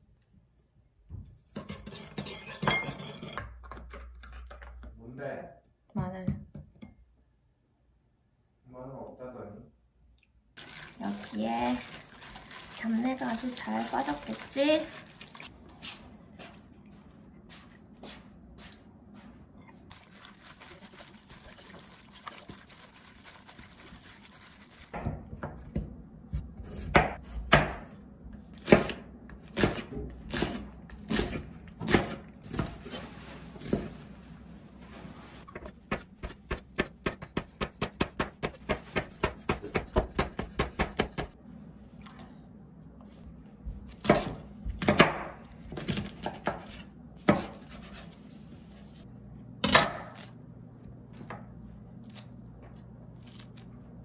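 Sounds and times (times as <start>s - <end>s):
knife chopping on cutting board: 25.4s - 27.9s, 35.6s - 41.3s, 43.9s - 47.8s.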